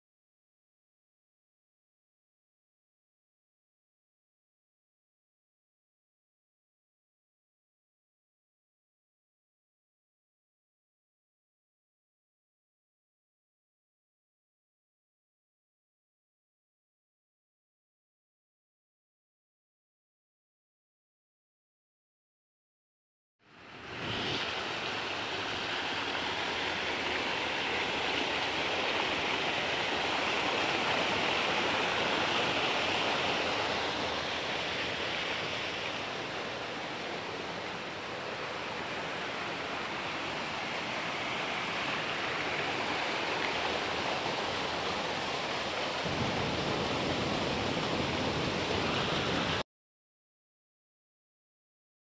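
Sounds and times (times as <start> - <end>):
stream splashing over stones: 23.6 - 49.6.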